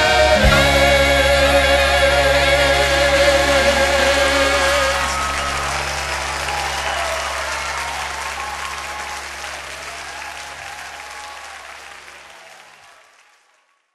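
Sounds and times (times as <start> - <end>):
congregation applauding: 3.8 - 13.9.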